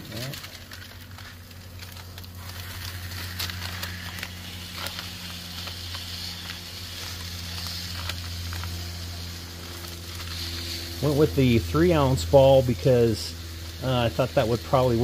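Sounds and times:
paper crackling: 0.0s - 11.8s
low hum: 0.0s - 15.0s
sausage sizzling on griddle: 0.0s - 15.0s.

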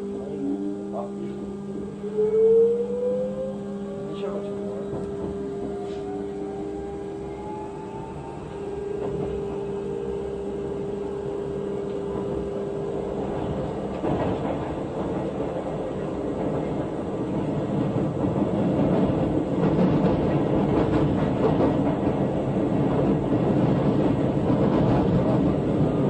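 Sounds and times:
train motor tone: 0.0s - 13.6s
wheels rumbling on rail: 0.0s - 26.0s.

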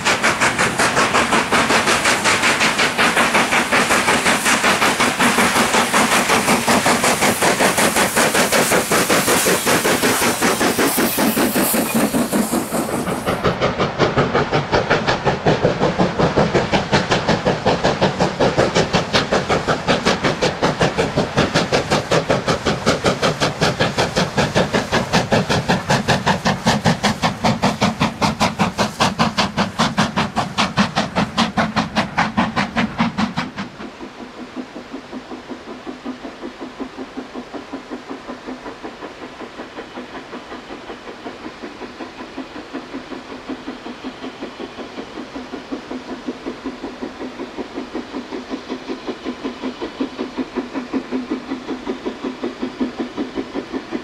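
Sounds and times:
steam locomotive chuffing: 0.0s - 54.0s.

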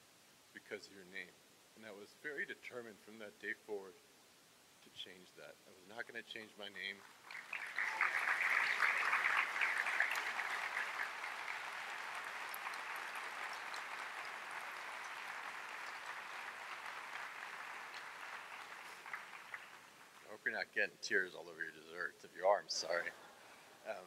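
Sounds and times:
audience applauding: 7.0s - 20.4s, 22.8s - 23.3s.

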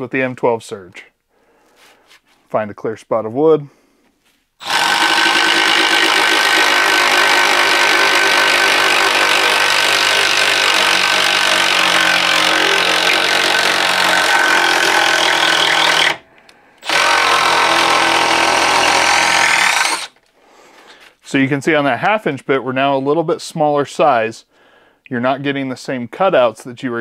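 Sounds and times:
impact driver drilling into wood: 4.6s - 16.2s, 16.8s - 20.2s.

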